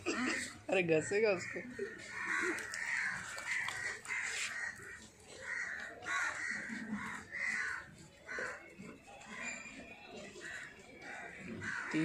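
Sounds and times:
crows cawing: 0:01.3 - 0:08.7, 0:10.3 - 0:12.0.

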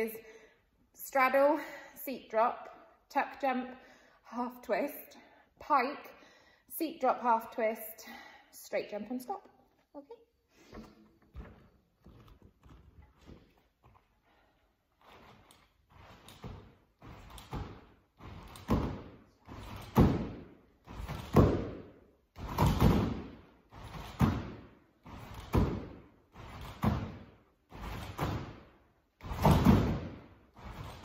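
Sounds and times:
trampoline bouncing: 0:15.0 - 0:31.0.

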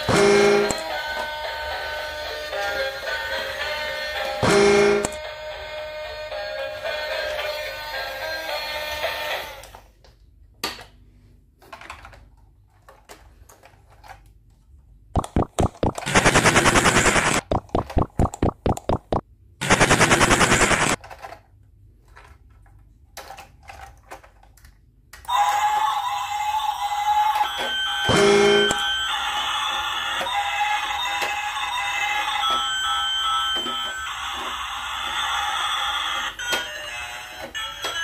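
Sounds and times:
toy train motor rattling: 0:28.8 - 0:38.0.

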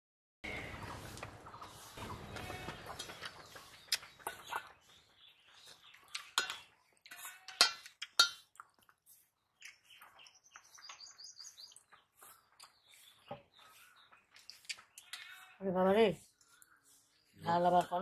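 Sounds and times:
bird chirping: 0:00.4 - 0:07.5, 0:09.0 - 0:18.0
steel plates clinking and scraping: 0:06.2 - 0:08.6.

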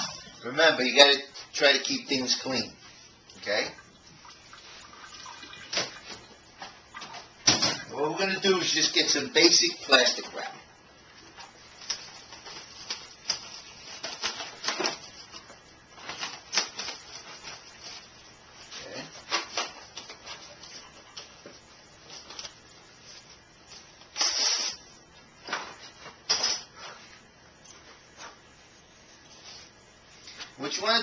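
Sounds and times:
plastic wrap crinkling: 0:11.2 - 0:21.3.

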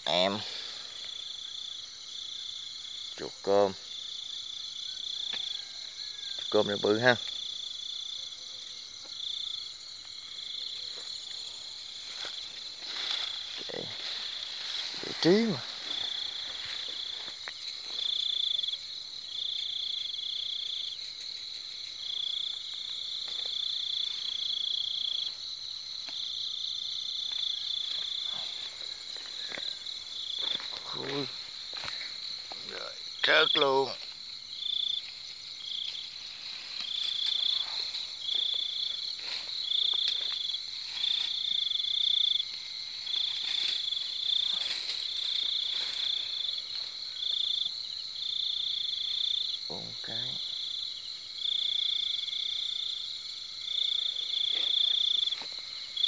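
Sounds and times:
insects high-pitched drone: 0:00.0 - 0:56.0
pulsing insect chirp: 0:00.0 - 0:56.0
plants rustling: 0:10.8 - 0:18.4, 0:34.9 - 0:47.3.

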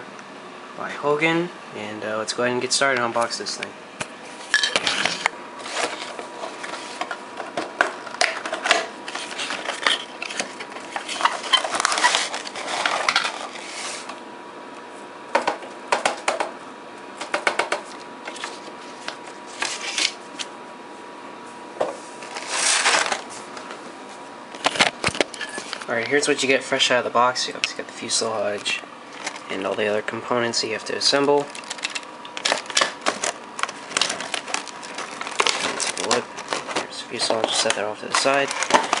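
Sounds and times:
packaging rustling and clicking: 0:05.2 - 0:13.6, 0:28.6 - 0:29.8, 0:31.4 - 0:39.0.

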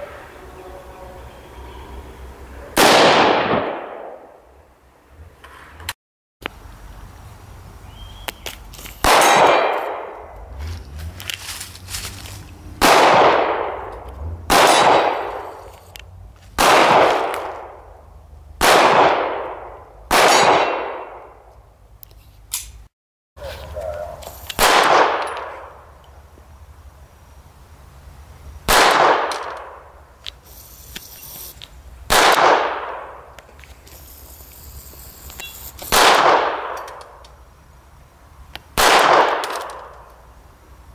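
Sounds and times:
small pistol firing: 0:02.8 - 0:04.2, 0:12.8 - 0:13.7, 0:14.5 - 0:15.4, 0:16.6 - 0:17.7, 0:18.6 - 0:21.2, 0:24.6 - 0:25.3, 0:28.7 - 0:29.8, 0:32.1 - 0:33.1, 0:35.9 - 0:37.0, 0:38.8 - 0:39.8
pistol shots with echo: 0:02.8 - 0:04.4, 0:09.0 - 0:10.1, 0:12.8 - 0:13.8, 0:14.5 - 0:15.4, 0:16.6 - 0:17.8, 0:18.6 - 0:21.3, 0:24.6 - 0:25.6, 0:28.7 - 0:29.8, 0:32.1 - 0:33.2, 0:35.9 - 0:37.0, 0:38.8 - 0:39.8.

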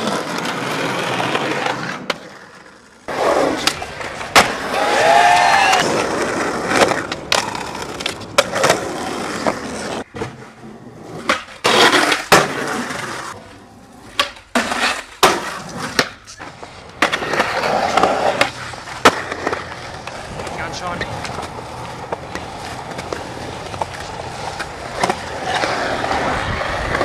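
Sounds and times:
skateboard clacks popping and landing: 0:00.0 - 0:04.8, 0:05.7 - 0:13.4, 0:14.0 - 0:27.0
skateboard wheels rolling on concrete: 0:00.0 - 0:27.0.

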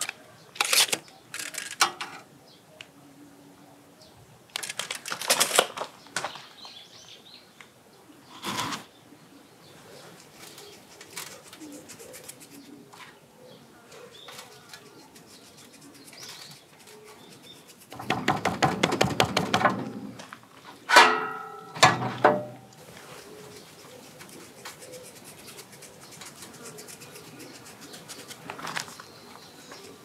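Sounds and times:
faint birds calling: 0:05.8 - 0:30.0
hands rubbing seasoning on meat: 0:10.5 - 0:12.8, 0:14.5 - 0:17.9, 0:22.8 - 0:30.0
metal rack clanking on tray: 0:20.9 - 0:22.7.

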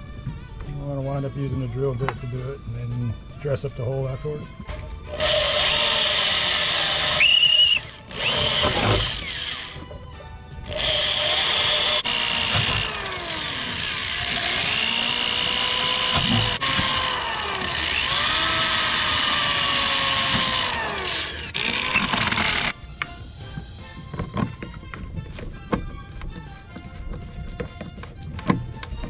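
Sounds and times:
electric drill boring through plastic: 0:05.1 - 0:10.0, 0:10.6 - 0:22.8.

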